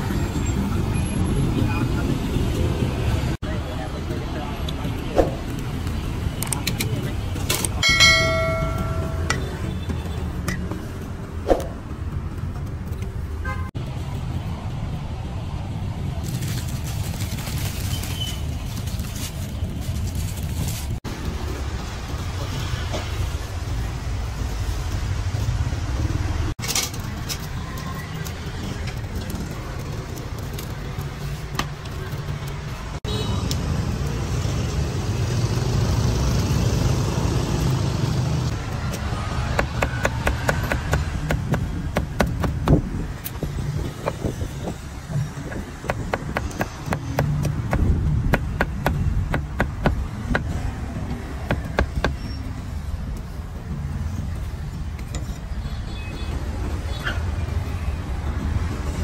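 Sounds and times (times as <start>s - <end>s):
street traffic hum: 0.0s - 59.0s
cleaver chopping on wooden block: 39.5s - 42.9s, 45.8s - 50.6s.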